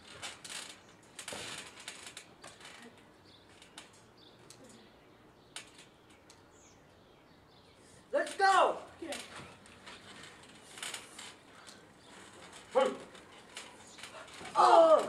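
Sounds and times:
faint clicks and rustling: 0.0 - 6.6, 8.1 - 15.0.

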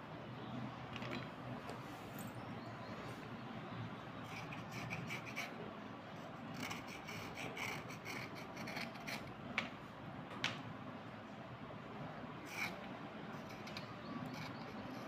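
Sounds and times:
scratchy rubbing of wet pencils: 4.2 - 5.6, 6.2 - 9.3, 12.4 - 15.0.

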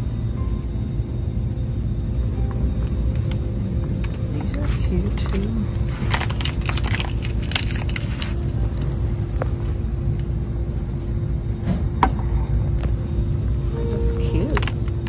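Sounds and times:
metallic jingling and clicking: 5.2 - 9.0.

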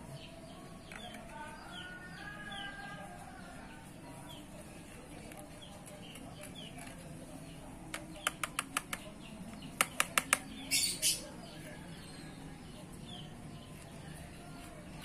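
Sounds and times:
stick tapping plastic tub: 7.9 - 10.6.

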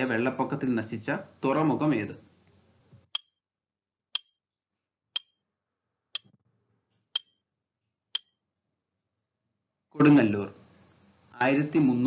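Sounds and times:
sharp clock-like ticks: 3.2 - 3.4, 4.2 - 4.4, 5.2 - 5.4, 7.2 - 7.4, 8.2 - 8.4.

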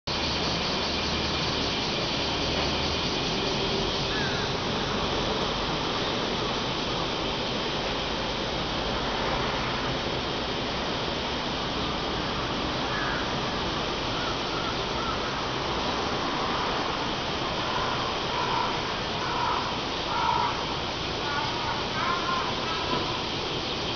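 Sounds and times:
cicada chorus drone: 0.1 - 23.9
low traffic rumble: 0.1 - 23.9
crows cawing: 4.1 - 5.1, 12.8 - 15.6, 17.7 - 23.3.

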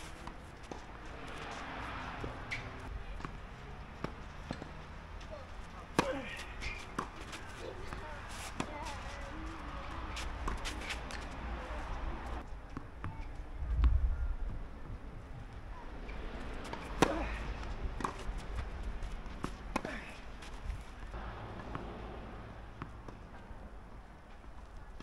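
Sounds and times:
tennis ball bouncing on court: 0.2 - 4.9, 5.8 - 12.0, 16.0 - 20.2, 21.0 - 23.5
tennis ball struck by rackets: 5.8 - 11.3, 16.1 - 20.2
low rumble on microphone: 13.2 - 15.8.

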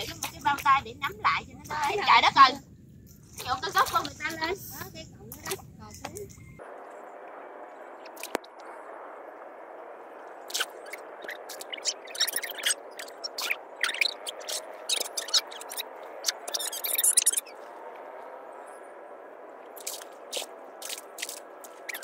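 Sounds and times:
wet squelches and splashes: 10.2 - 18.4, 19.6 - 22.0.

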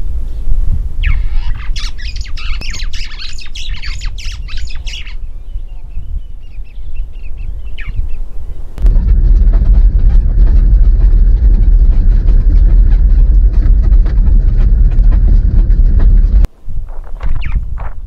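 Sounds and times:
steady low rumble: 0.0 - 18.0
faint bird chirps: 1.0 - 8.8, 17.0 - 17.7.

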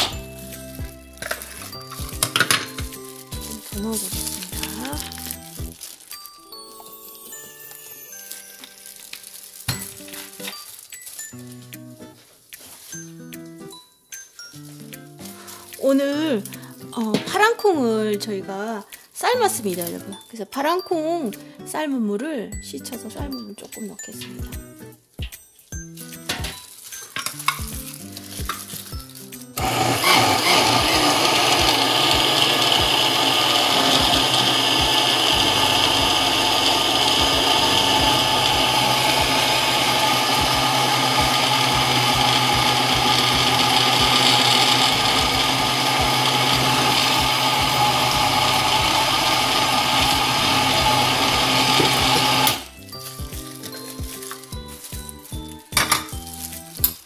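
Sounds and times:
electric blender running: 0.0 - 5.8, 29.6 - 52.7.

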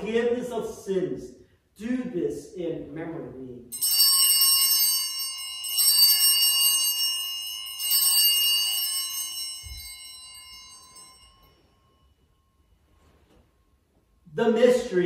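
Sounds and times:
altar bells ringing: 3.7 - 13.8.

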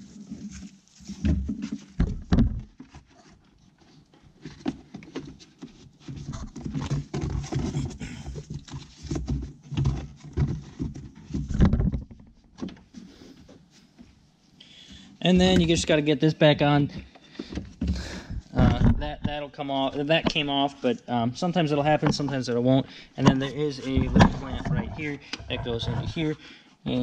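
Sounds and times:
plastic knocking and rubbing: 0.0 - 13.0, 15.3 - 16.0, 16.9 - 20.5, 23.2 - 26.4.

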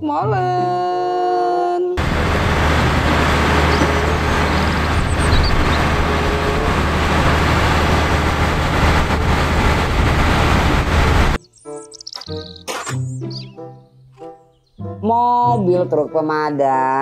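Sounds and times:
diesel engine rumbling: 2.0 - 11.4.

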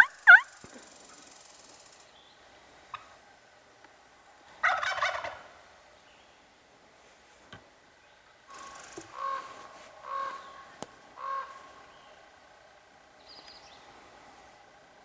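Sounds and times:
bird calling: 0.0 - 3.2, 8.1 - 12.4, 13.2 - 13.9.

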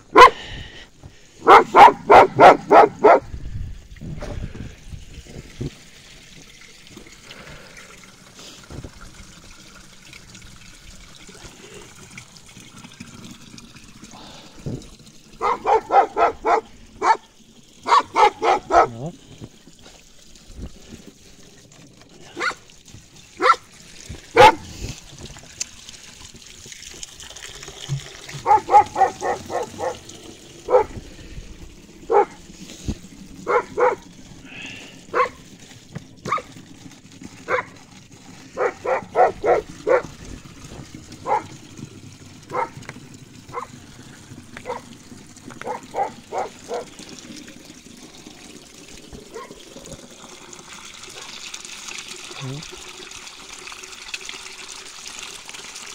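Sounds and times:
water trickling from tap: 0.0 - 55.9
dog barking: 0.2 - 0.4, 1.4 - 3.2, 15.4 - 17.2, 17.9 - 19.1, 22.4 - 22.6, 23.4 - 23.6, 24.4 - 24.7, 28.4 - 30.0, 30.7 - 31.0, 32.1 - 32.4, 33.4 - 34.0, 35.1 - 35.4, 36.3 - 36.5, 37.5 - 37.7, 38.6 - 40.1, 41.2 - 41.5, 42.5 - 42.8, 44.6 - 44.8, 45.6 - 46.9, 49.3 - 49.6.

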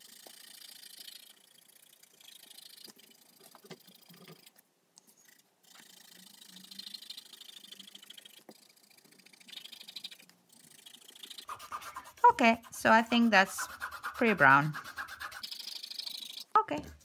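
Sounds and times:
pencil scratching on paper: 5.3 - 17.0.

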